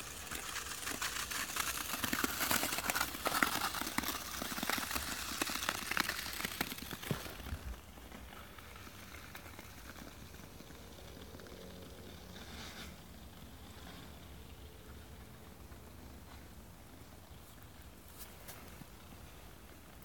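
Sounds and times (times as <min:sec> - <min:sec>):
ice skate blades scraping ice: 0:00.0 - 0:11.3, 0:12.0 - 0:14.2.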